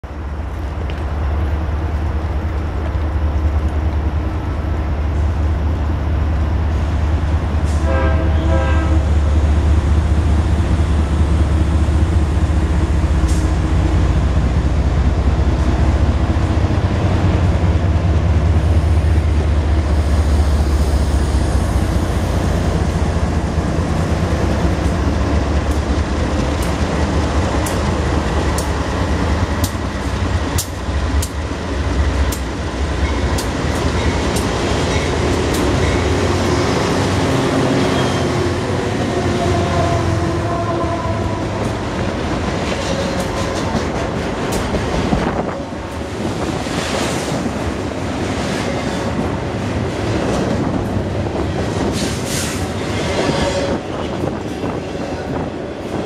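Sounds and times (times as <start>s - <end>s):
diesel locomotives rumbling: 0.0s - 56.0s
train horn: 7.6s - 9.3s, 38.0s - 41.7s, 53.2s - 54.1s
train wheel clicks: 24.5s - 36.2s.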